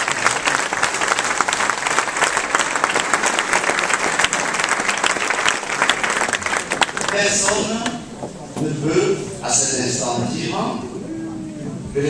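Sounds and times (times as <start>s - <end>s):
crowd applauding: 0.0s - 8.1s.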